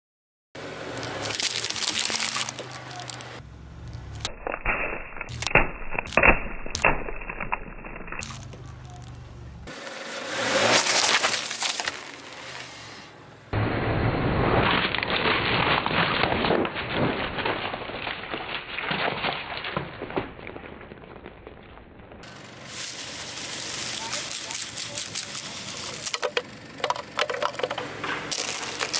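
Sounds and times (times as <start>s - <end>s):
car tyre rolling: 0.6s - 4.3s, 8.2s - 18.8s, 19.4s - 28.9s
plastic bottles bursting: 0.8s - 3.4s, 10.7s - 12.6s, 22.7s - 28.9s
crackling hiss: 22.2s - 26.1s
rice grains pouring: 22.6s - 26.1s.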